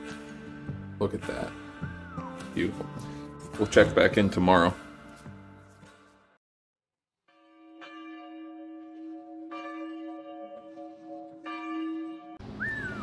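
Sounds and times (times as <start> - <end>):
bell ringing: 7.4 - 12.6.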